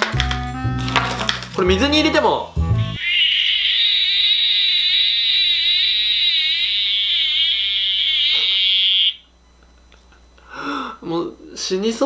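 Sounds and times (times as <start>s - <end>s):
shrill electronic alarm shriek: 3.0s - 9.3s.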